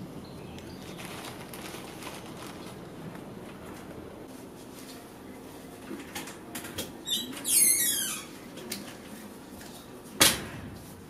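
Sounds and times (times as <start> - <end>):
door hinges squealing: 7.0 - 8.3.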